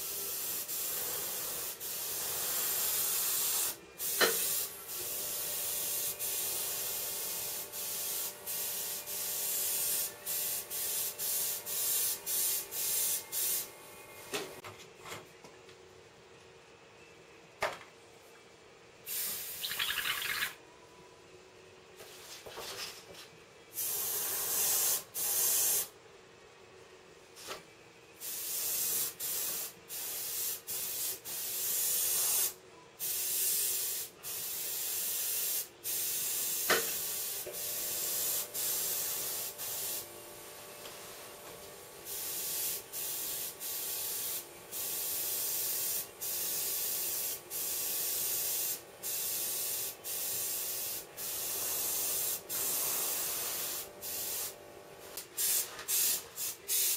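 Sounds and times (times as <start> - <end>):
airbrush spraying hiss: 0.3 - 13.8, 19.1 - 20.4, 28.2 - 40.1, 42.0 - 56.9.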